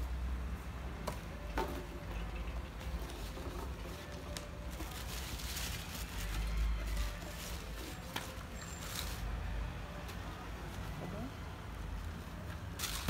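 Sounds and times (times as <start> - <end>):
packaging rustling: 3.1 - 9.3.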